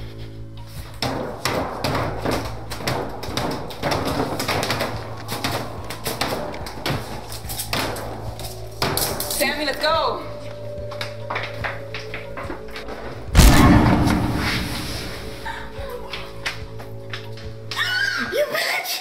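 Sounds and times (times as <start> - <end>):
steady low hum: 13.4 - 15.8.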